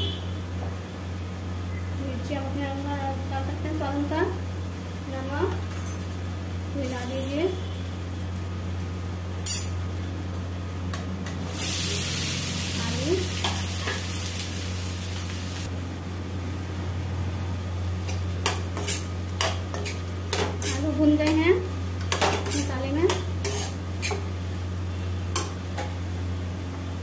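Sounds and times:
frying hiss: 11.3s - 15.7s
spoon scraping metal pan: 18.4s - 21.4s, 22.1s - 24.3s.

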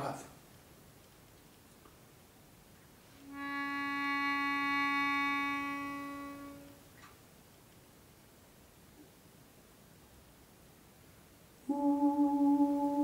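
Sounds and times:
melodica held note: 3.2s - 6.8s.

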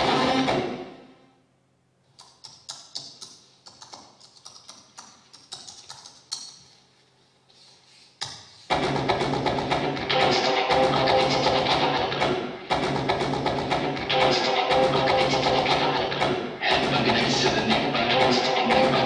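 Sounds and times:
guitar-led music: 0.0s - 1.1s, 8.7s - 19.0s
loud music: 0.0s - 1.2s, 8.7s - 19.0s.

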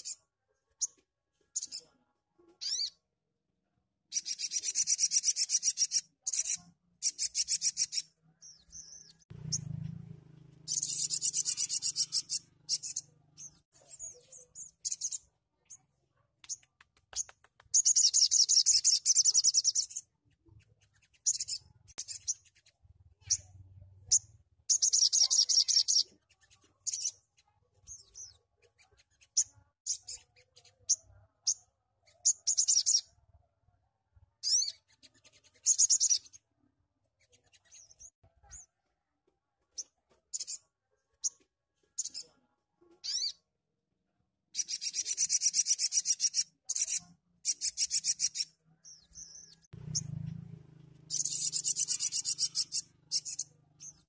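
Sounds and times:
sharp bird chirps: 2.6s - 3.0s, 4.1s - 9.8s, 10.7s - 15.8s, 16.4s - 33.2s, 34.4s - 36.4s, 44.5s - 50.2s, 51.0s - 54.0s.

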